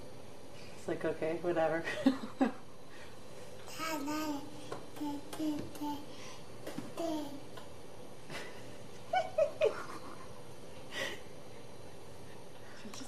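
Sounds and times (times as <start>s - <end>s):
baby babbling: 3.7s - 6.1s, 7.0s - 7.5s.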